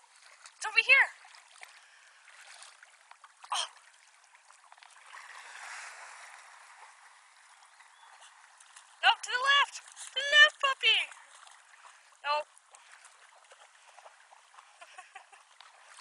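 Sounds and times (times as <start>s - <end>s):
running river water: 0.0s - 16.0s
dog splashing through water: 12.7s - 14.8s.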